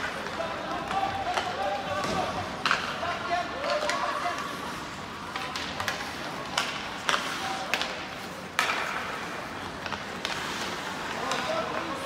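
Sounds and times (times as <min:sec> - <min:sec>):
hockey sticks clacking on puck: 0:00.0 - 0:12.0
skates scraping on ice: 0:00.0 - 0:12.0.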